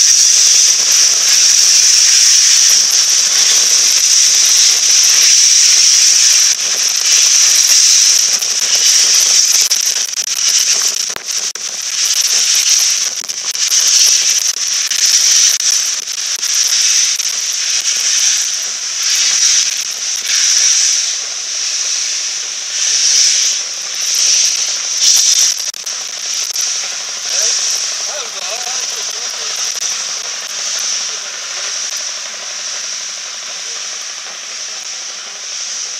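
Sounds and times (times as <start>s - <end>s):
steam hissing from drain cocks: 0.0s - 35.9s
steam locomotive chuffs: 0.0s - 35.9s.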